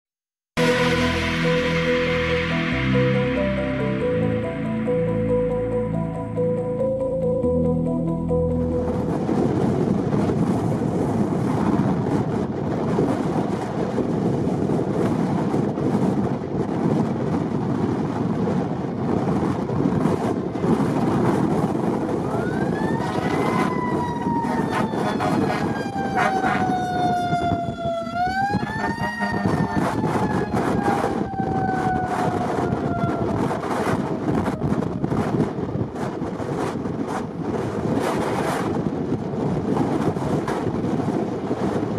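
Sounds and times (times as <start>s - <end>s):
fire engine siren wailing: 0.6s - 11.4s, 20.7s - 36.1s
wind buffeting microphone: 8.5s - 41.9s.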